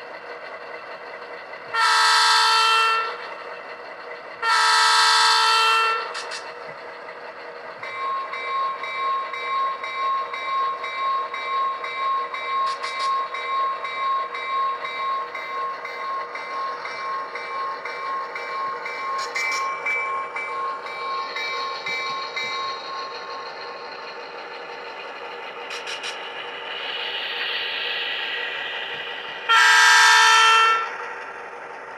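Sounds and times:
model locomotive engine sounds: 0.0s - 31.9s
locomotive bell ringing: 7.7s - 25.6s.

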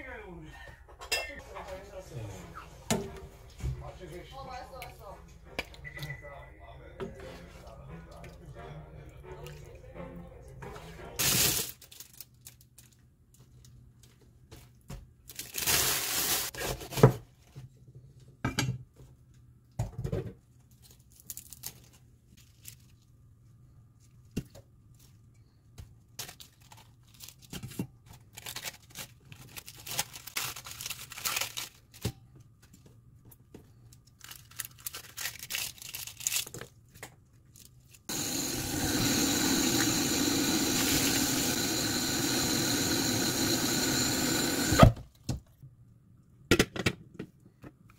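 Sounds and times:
lettuce leaves being torn: 28.4s - 31.8s, 34.2s - 36.7s.

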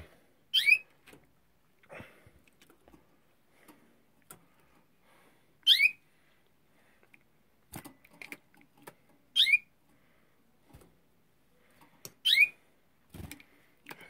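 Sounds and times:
canary sweeping chirp call: 0.5s - 0.8s, 5.6s - 6.0s, 9.4s - 9.7s, 12.2s - 12.6s.

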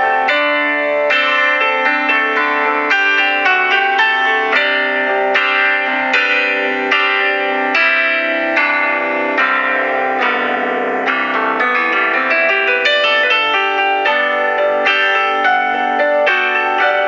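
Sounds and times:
keyboard melody: 0.0s - 17.0s.

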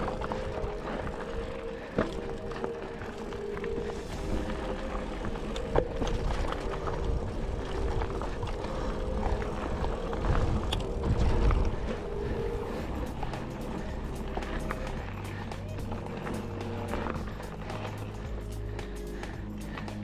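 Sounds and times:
bike clicks and rattles: 0.0s - 20.0s
bike tyre rumble on dirt: 0.0s - 20.0s
wind on microphone: 3.2s - 16.3s.

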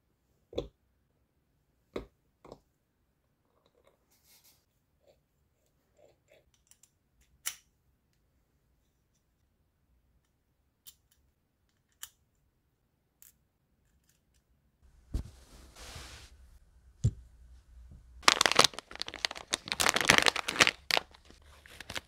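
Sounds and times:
rustle with soft knock: 14.9s - 18.1s.

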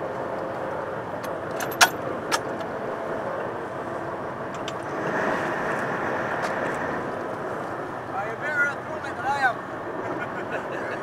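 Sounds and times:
sea wash: 3.0s - 11.0s.

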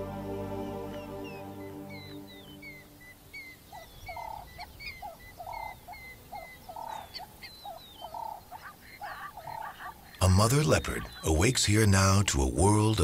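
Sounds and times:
high falling chirps: 0.0s - 3.6s
lower repeated animal call: 1.3s - 11.4s.

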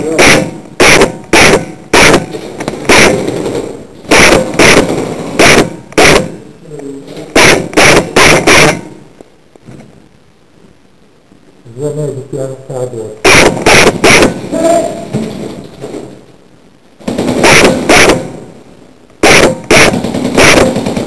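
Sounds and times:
airsoft gun shots: 0.0s - 6.4s, 7.3s - 9.0s, 13.2s - 14.6s, 17.0s - 18.5s, 19.2s - 21.0s.

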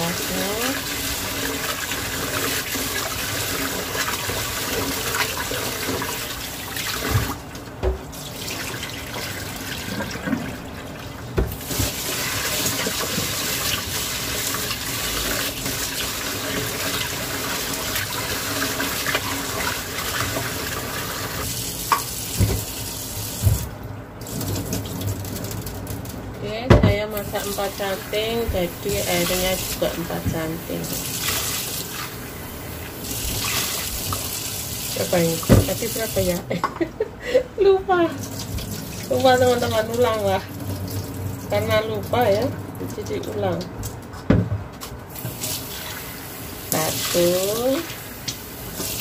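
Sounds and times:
tap water running into sink: 0.0s - 26.2s, 26.8s - 36.6s, 38.2s - 49.0s
dull knocks against sink: 22.4s - 22.7s, 44.2s - 44.7s.

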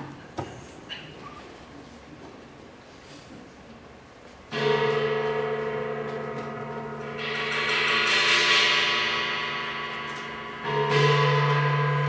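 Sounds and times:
gong ringing: 4.5s - 12.0s.

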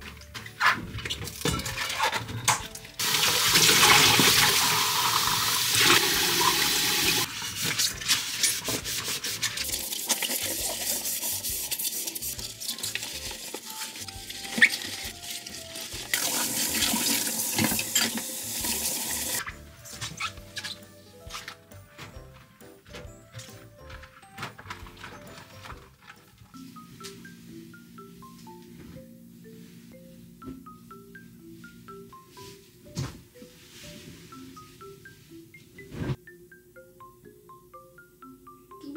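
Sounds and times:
running water: 3.0s - 7.4s, 8.2s - 19.4s.

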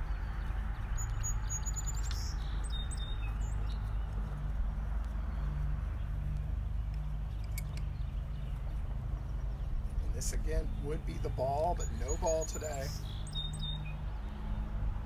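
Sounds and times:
bird chirps: 0.0s - 4.3s, 7.0s - 14.0s
low outdoor rumble: 0.0s - 13.3s.

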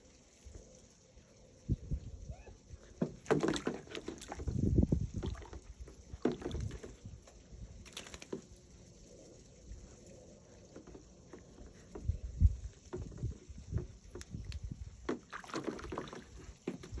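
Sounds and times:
animal splashing in water: 3.0s - 7.2s, 7.8s - 8.7s, 15.1s - 17.0s.

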